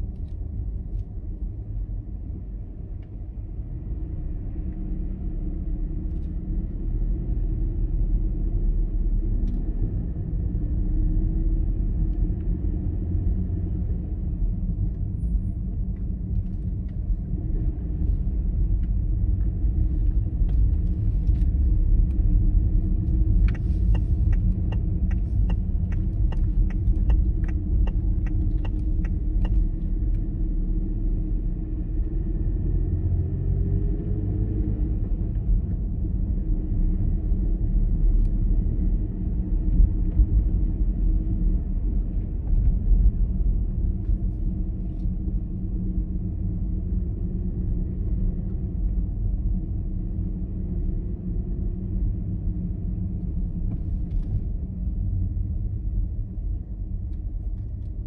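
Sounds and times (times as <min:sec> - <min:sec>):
car engine and tyres rumbling: 0:00.0 - 0:58.0
turn signal ticking: 0:20.5 - 0:30.5.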